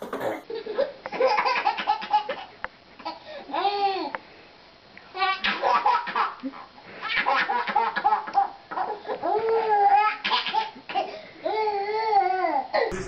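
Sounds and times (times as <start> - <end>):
baby laughing: 0.5 - 3.8.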